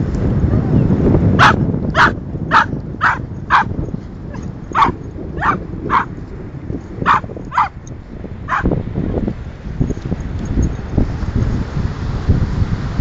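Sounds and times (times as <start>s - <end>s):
dog barking sharply: 1.4s - 3.7s, 4.8s - 6.1s, 7.1s - 7.8s.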